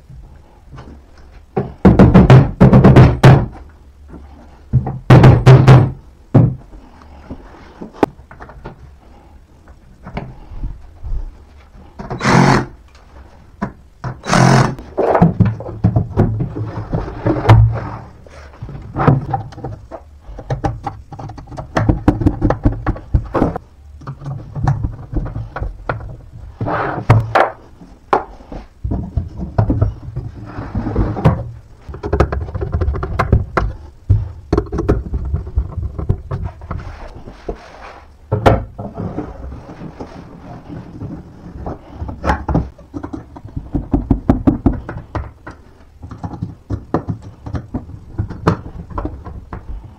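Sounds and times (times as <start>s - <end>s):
knocks of wooden panels: 1.6s - 3.7s, 4.7s - 6.7s
rubbing handling noise: 5.9s - 49.9s.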